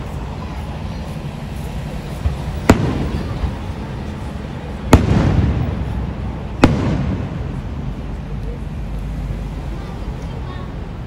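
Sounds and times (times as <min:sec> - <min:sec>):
firework shells bursting: 0:04.9 - 0:07.6.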